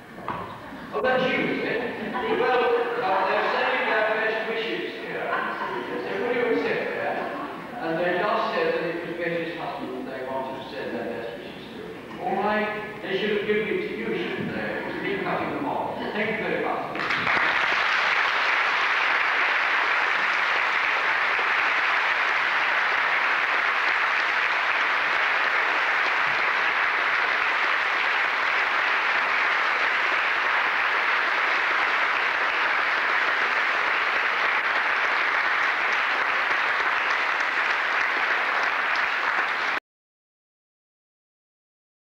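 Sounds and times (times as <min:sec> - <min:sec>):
audience applauding: 0:16.9 - 0:39.8.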